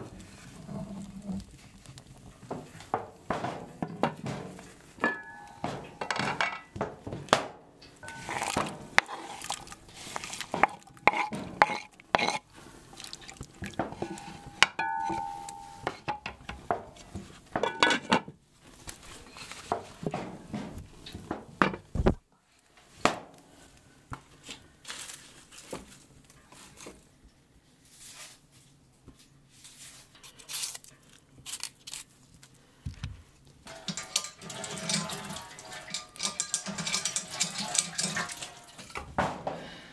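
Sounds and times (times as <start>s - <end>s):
cookware knocking on brick: 3.0s - 9.4s, 10.5s - 12.4s, 13.8s - 17.0s, 17.6s - 18.3s, 33.7s - 39.4s
short metallic rings: 5.0s - 6.7s, 8.0s - 8.6s, 14.0s - 15.9s, 33.7s - 38.9s.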